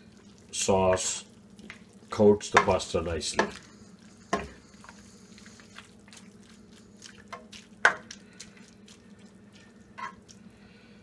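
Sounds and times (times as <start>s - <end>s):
low steady hum: 0.0s - 11.0s
spoon stirring thick sauce: 0.1s - 10.5s
spoon knocking pan: 2.5s - 3.6s.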